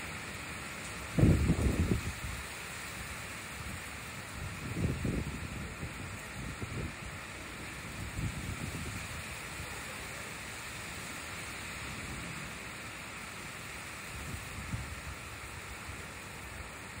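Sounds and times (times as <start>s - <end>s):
heavy rain falling: 0.0s - 17.0s
water streaming off roof edge: 0.0s - 17.0s
wind buffeting microphone: 1.2s - 2.4s, 4.3s - 7.1s, 7.7s - 9.3s.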